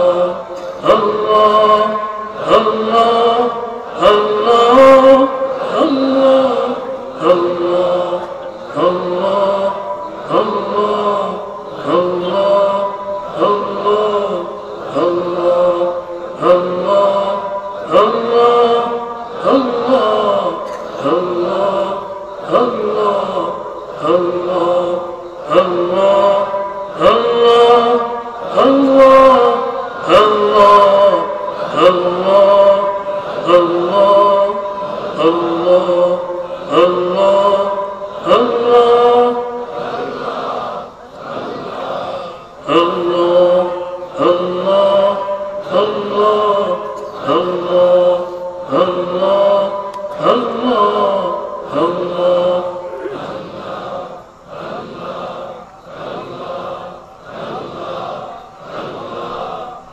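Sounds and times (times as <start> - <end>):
men chanting: 0.0 - 59.9.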